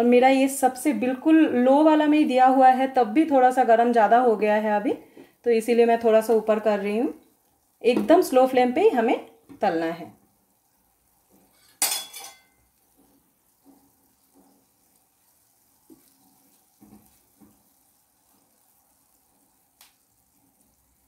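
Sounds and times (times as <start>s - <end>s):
faint oil sizzle: 0.0s - 21.0s
spoon tapping and scraping saucepan: 11.4s - 14.7s
steel cookware clank: 11.6s - 12.6s.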